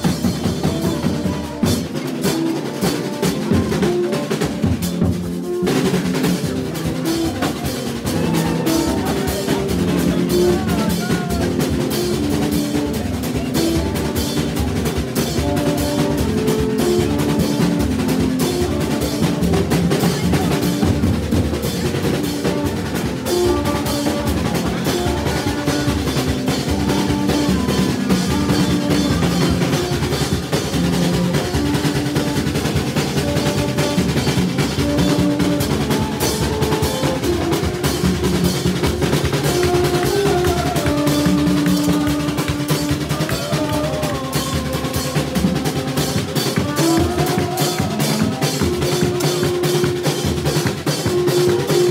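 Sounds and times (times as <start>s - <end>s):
percussion band groove: 0.0s - 51.9s
short repeated horn notes: 22.0s - 51.9s.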